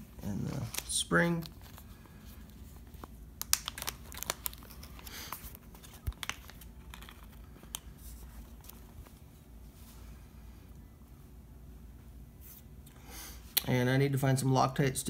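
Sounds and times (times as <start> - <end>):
plastic bag crinkling: 0.3 - 9.0.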